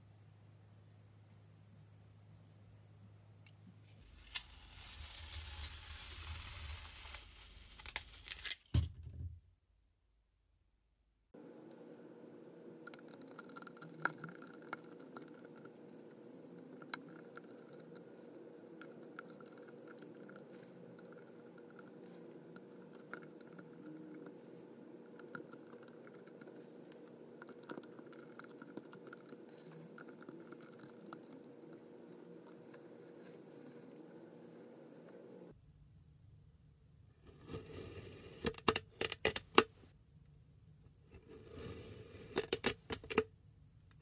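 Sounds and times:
faint steady hum: 0:00.0 - 0:44.0
sand scattering onto surface: 0:04.0 - 0:08.6.

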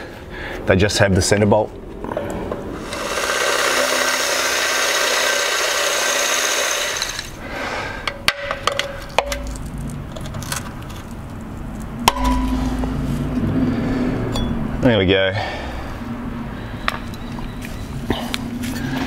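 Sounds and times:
cordless drill drilling: 0:02.8 - 0:07.4.

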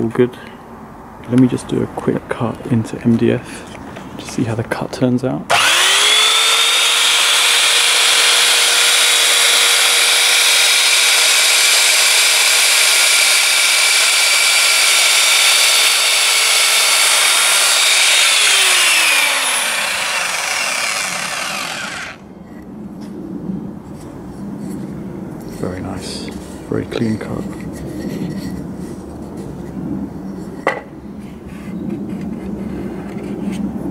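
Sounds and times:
mitre saw cutting: 0:05.5 - 0:22.2.

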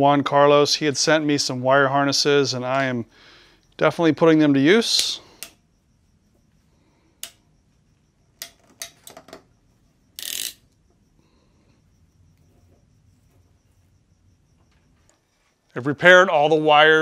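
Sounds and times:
ratchet crimping tool clicking: 0:10.2 - 0:10.6.

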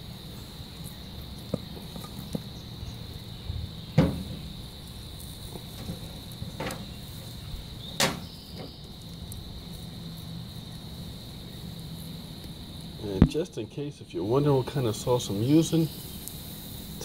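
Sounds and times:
high-pitched insect drone: 0:00.0 - 0:17.0
sharp clicks and knocks: 0:05.5 - 0:06.9.

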